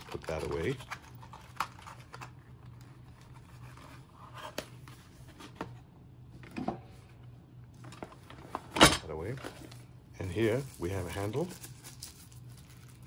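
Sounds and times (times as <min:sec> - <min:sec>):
cardboard packaging rustling: 0:00.0 - 0:05.8, 0:09.2 - 0:13.0.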